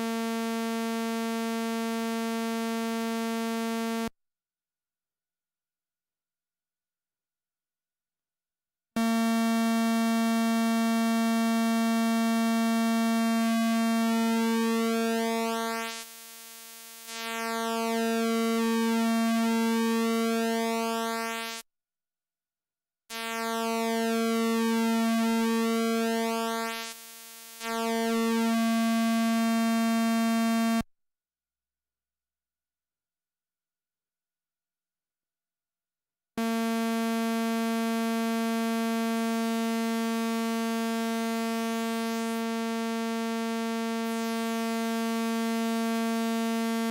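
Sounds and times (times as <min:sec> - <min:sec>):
buzzy synthesizer pulse tone: 0:09.0 - 0:21.6, 0:23.1 - 0:30.8, 0:36.4 - 0:46.9.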